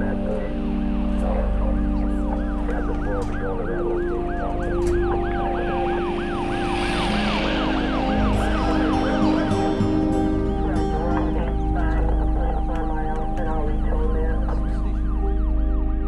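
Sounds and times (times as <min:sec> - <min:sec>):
hissing rush: 0:00.0 - 0:15.0
low music tones: 0:00.0 - 0:16.0
siren yelping: 0:00.0 - 0:16.0.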